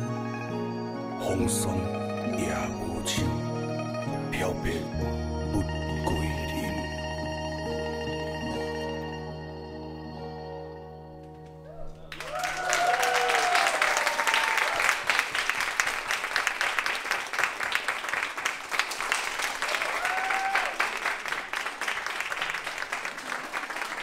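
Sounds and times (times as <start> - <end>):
audience applauding: 11.4 - 24.0
cheers and whoops: 11.6 - 15.2, 19.6 - 21.0.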